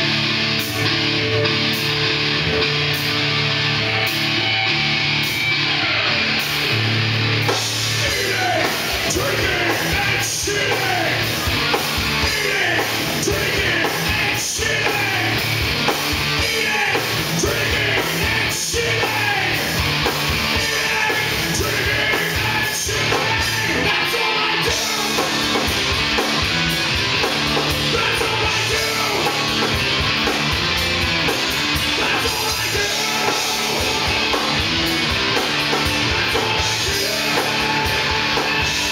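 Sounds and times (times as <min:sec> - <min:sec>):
heavy rock band playing: 0:00.0 - 0:38.9
person singing: 0:07.9 - 0:11.3, 0:12.2 - 0:15.5, 0:16.3 - 0:19.8, 0:20.5 - 0:25.7, 0:27.8 - 0:29.7, 0:31.9 - 0:34.6, 0:35.8 - 0:38.9.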